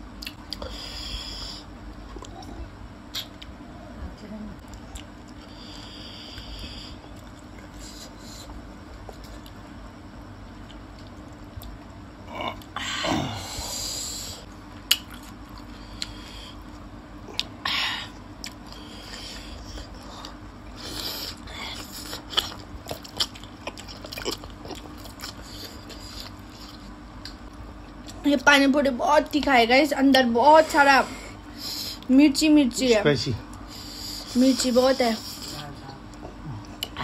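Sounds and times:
chewing with crisp crunches: 4.6s - 5.8s, 6.4s - 9.6s, 10.5s - 12.8s, 14.8s - 17.6s, 18.3s - 28.2s.

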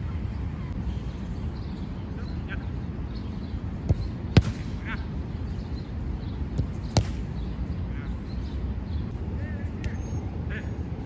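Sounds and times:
soccer ball kicks: 3.8s - 4.9s, 6.5s - 7.3s.

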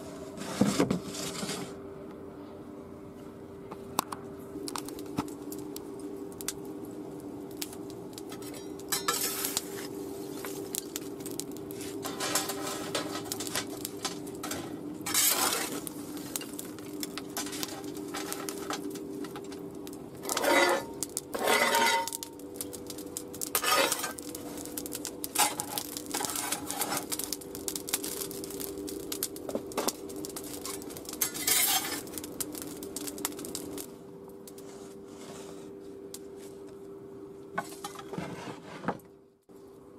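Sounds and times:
charcoal clinking and rattling: 7.5s - 33.9s
metal tool scraping: 15.1s - 15.7s, 20.3s - 22.2s, 23.6s - 24.1s, 31.2s - 32.0s.

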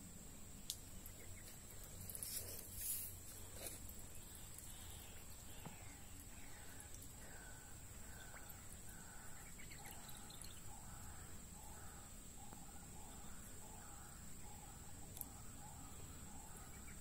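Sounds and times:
faint falling bird calls: 0.7s - 17.0s
faint high-pitched drone: 3.9s - 17.0s.

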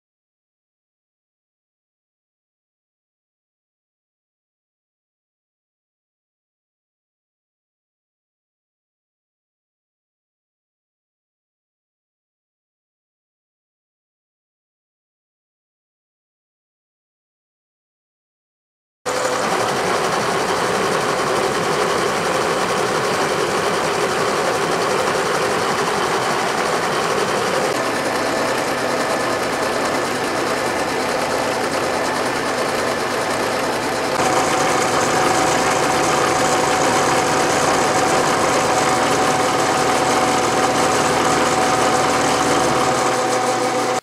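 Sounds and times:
milling machine cutting steel: 19.1s - 44.0s.

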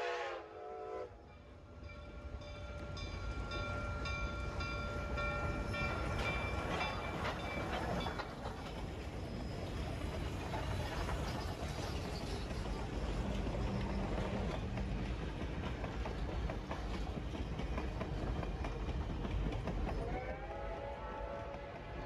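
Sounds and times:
steam whistle blowing: 0.0s - 1.2s, 20.0s - 22.0s
steam train rumbling past: 0.0s - 22.0s
wheels clattering on rails: 2.8s - 22.0s.

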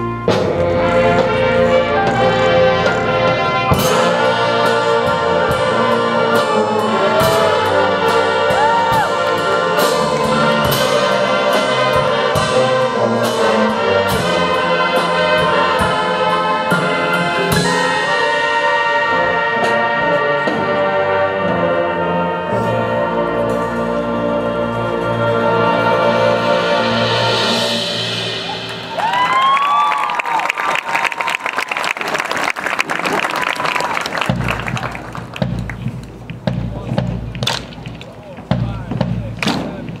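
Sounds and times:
brass section chords: 0.0s - 30.1s.

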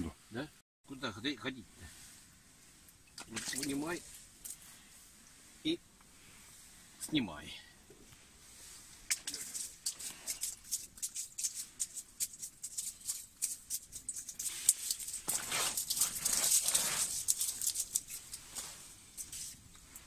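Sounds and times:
fish flapping on ice: 9.0s - 19.7s.

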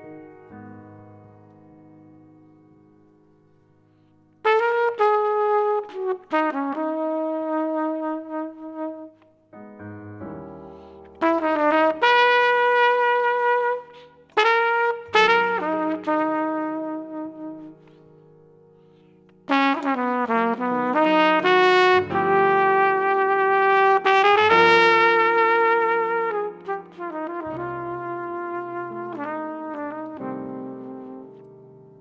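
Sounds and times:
big band brass chords: 4.5s - 9.2s, 11.2s - 17.8s, 19.5s - 31.3s.

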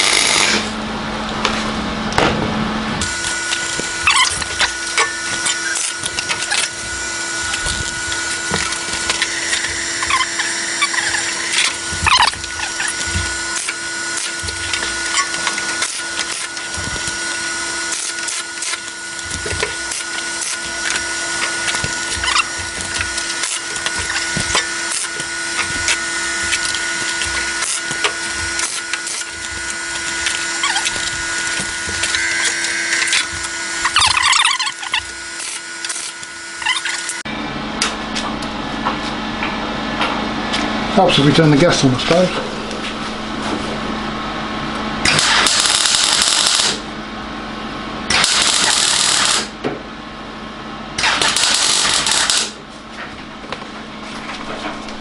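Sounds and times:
welder crackling: 0.0s - 0.8s, 3.0s - 37.2s, 45.0s - 46.8s, 48.1s - 49.5s, 51.0s - 52.6s.

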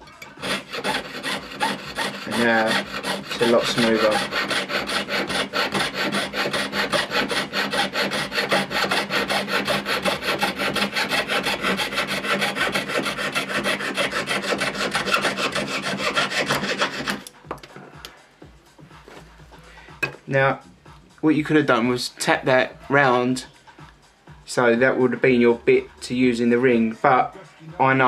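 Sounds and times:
saw cutting metal: 0.0s - 17.3s.

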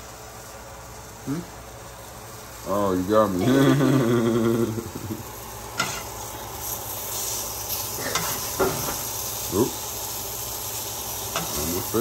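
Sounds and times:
food sizzling in a frying pan: 0.0s - 12.0s.

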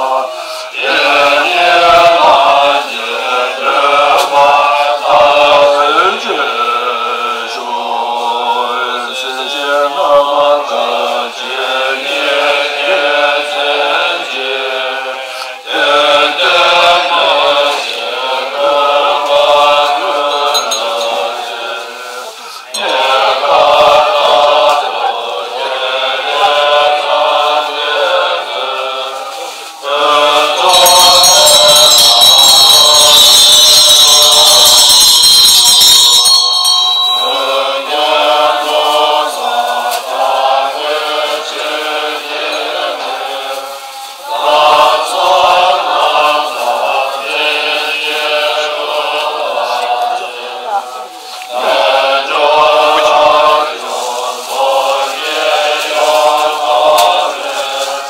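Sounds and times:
monks chanting together: 0.0s - 58.0s
noisy wash with ringing tones: 28.4s - 39.5s, 41.8s - 45.2s.

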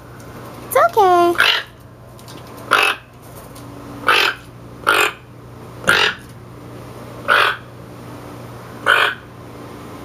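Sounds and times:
toucan croaking: 2.7s - 3.0s, 4.0s - 6.3s, 7.2s - 7.7s, 8.8s - 9.3s.

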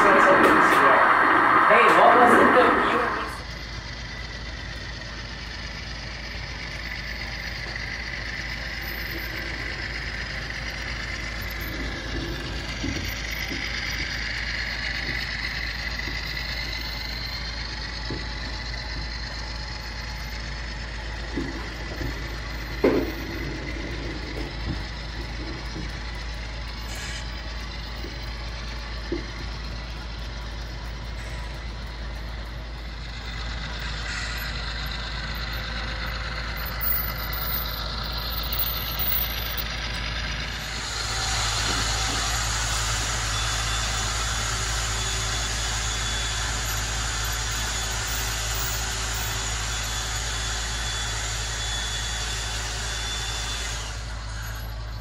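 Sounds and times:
sharp track clicks: 0.0s - 5.7s
diesel engine sound: 0.0s - 55.0s
model train wheels rumbling on track: 0.0s - 55.0s.

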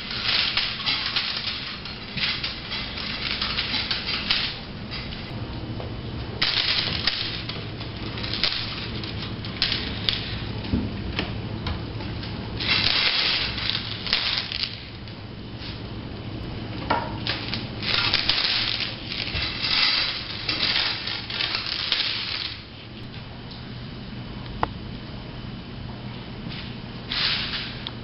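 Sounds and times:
bead garland rattling on floor: 0.0s - 5.1s, 6.4s - 10.5s, 12.6s - 15.0s, 17.2s - 22.7s
steady low hum: 0.0s - 28.0s.

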